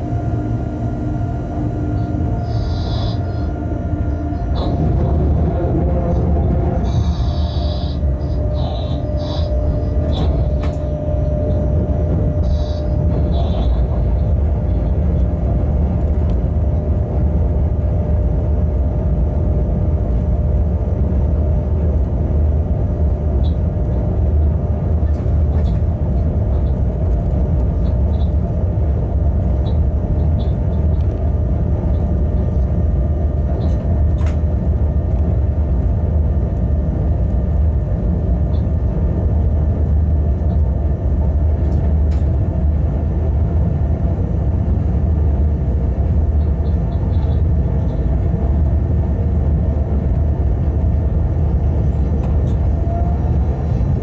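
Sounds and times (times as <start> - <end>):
constant hum: 0.0 - 54.0
locomotive rumbling: 0.0 - 54.0.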